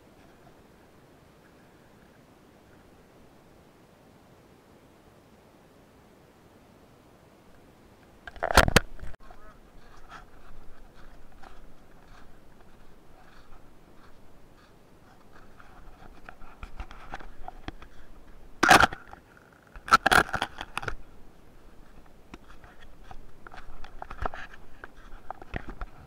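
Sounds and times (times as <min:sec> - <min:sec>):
footsteps crunching in snow: 0:09.2 - 0:18.6.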